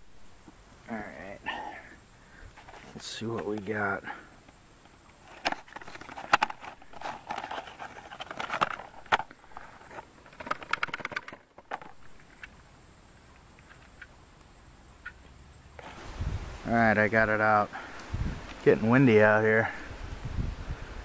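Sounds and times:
cardboard box rustling: 5.3 - 11.8.

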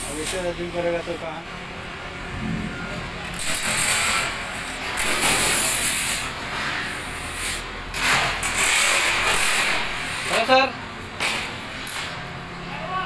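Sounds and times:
steel panel scraping over metal: 2.4 - 6.3.

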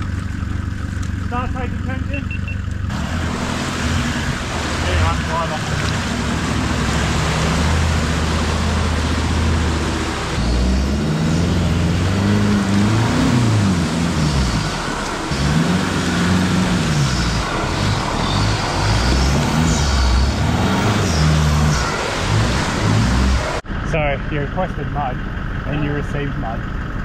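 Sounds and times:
engines droning: 0.0 - 27.0
engine revving: 1.0 - 26.8.

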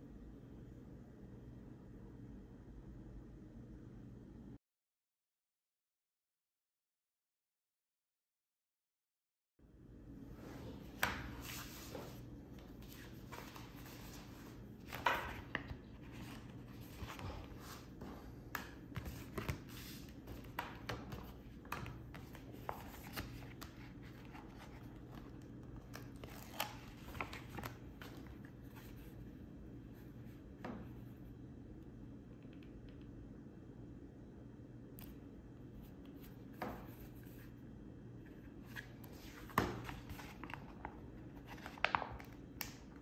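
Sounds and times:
low steady hum: 0.0 - 4.6, 9.6 - 43.0
paper rustling: 10.7 - 29.3, 38.3 - 42.8.

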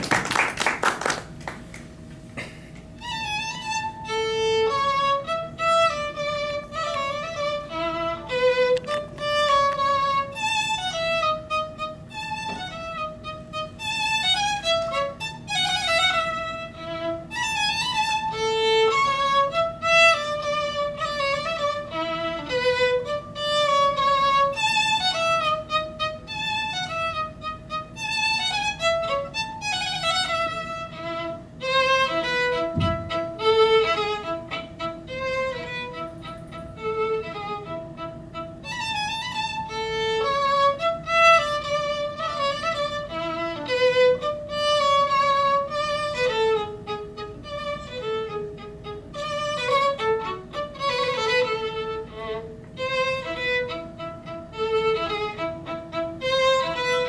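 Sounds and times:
applause: 0.0 - 1.9
solo violin melody: 2.9 - 57.0.

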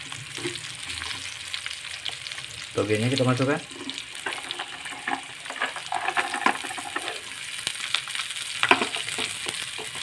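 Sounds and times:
food sizzling in a wok: 0.0 - 10.0
metal spatula scraping a pan: 3.6 - 7.4.

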